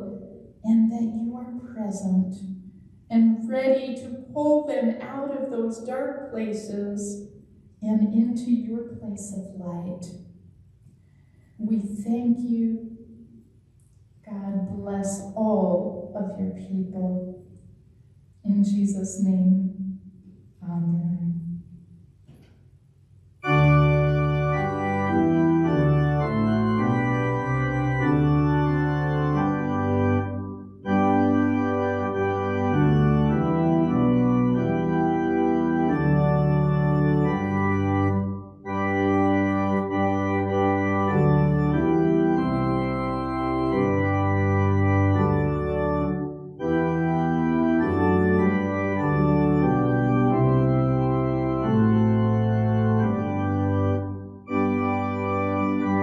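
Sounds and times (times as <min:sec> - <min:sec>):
church organ playing chords: 0:23.4 - 0:56.0.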